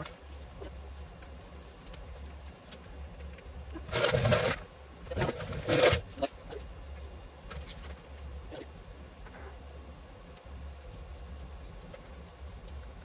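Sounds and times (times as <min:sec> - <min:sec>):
low steady hum: 0:00.0 - 0:13.0
metal parts scraping and clattering: 0:03.9 - 0:06.2.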